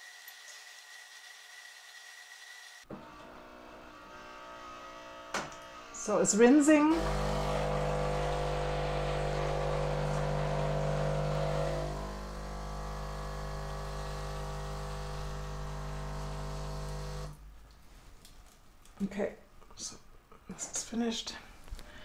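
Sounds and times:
coffee machine pump humming: 0:06.9 - 0:17.4.

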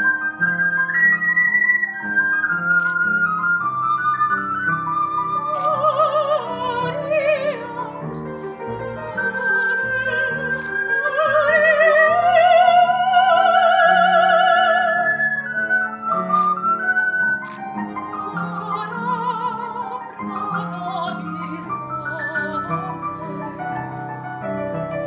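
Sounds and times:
ocarina: 0:00.0 - 0:25.0
woman singing operatically: 0:05.6 - 0:08.2, 0:08.8 - 0:15.3, 0:18.1 - 0:23.8.

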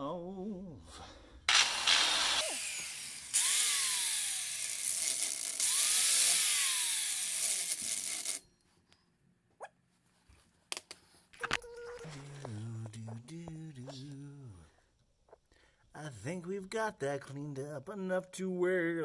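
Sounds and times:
power tool running: 0:01.5 - 0:08.4.

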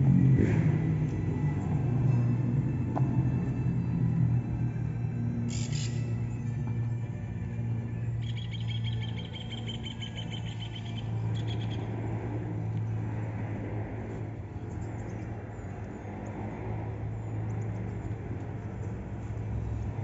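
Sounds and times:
birds chirping: 0:05.5 - 0:06.2, 0:08.2 - 0:12.1.

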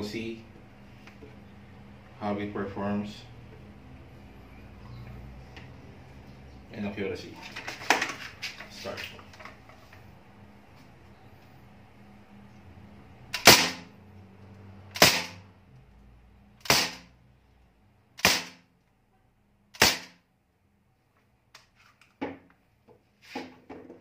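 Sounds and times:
air rifle shots echoing: 0:13.4 - 0:13.9, 0:15.0 - 0:15.4, 0:16.6 - 0:17.1, 0:18.2 - 0:18.6, 0:19.8 - 0:20.2.

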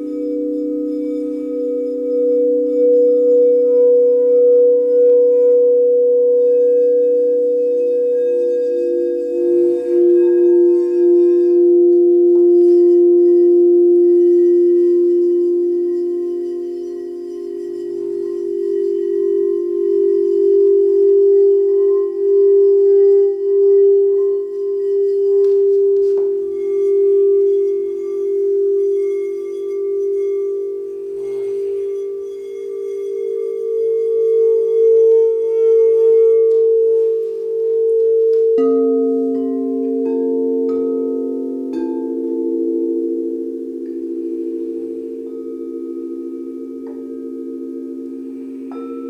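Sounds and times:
singing bowls ringing: 0:00.0 - 0:49.0.

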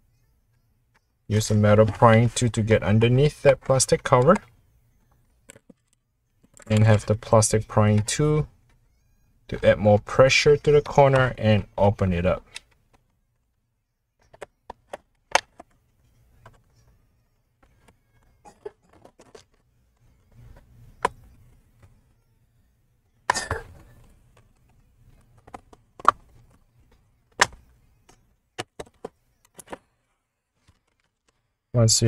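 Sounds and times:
plastic clips snapping loose: 0:25.4 - 0:26.4, 0:27.4 - 0:27.6.

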